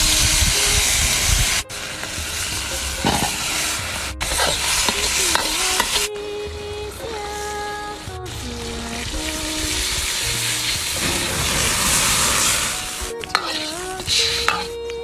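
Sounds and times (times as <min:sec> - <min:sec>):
food sizzling in hot oil: 0:00.0 - 0:06.1, 0:08.3 - 0:14.7
background music: 0:00.0 - 0:15.0
metal ladle stirring in wok: 0:01.5 - 0:06.1, 0:09.0 - 0:14.8.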